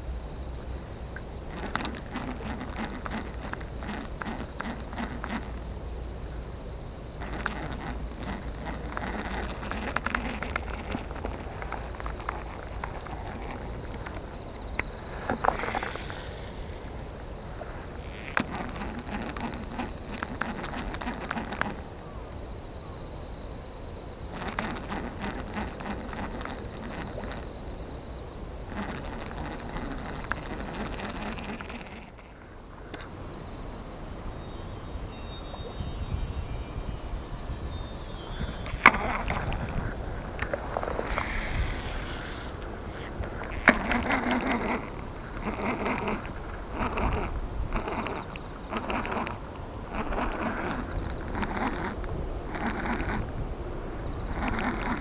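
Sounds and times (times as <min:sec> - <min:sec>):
shimmering chime: 0:33.4 - 0:42.6.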